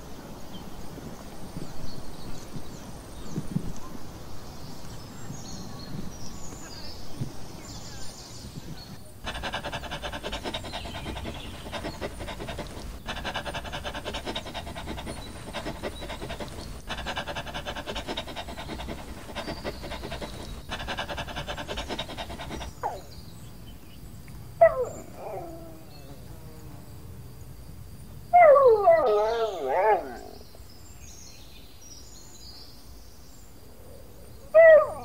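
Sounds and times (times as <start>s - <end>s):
dog panting: 9.2s - 23.0s.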